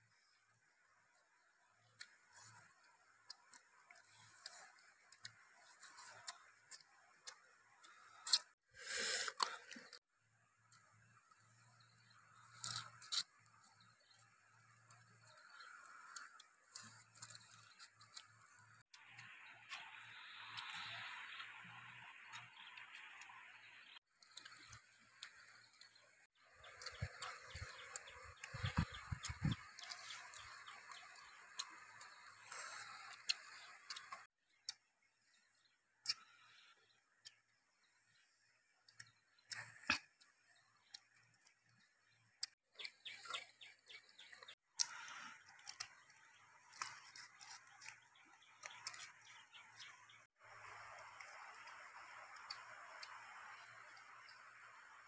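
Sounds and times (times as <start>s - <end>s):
birds chattering: 26.6s - 31.6s
person chewing: 26.6s - 32.1s, 44.8s - 49.1s.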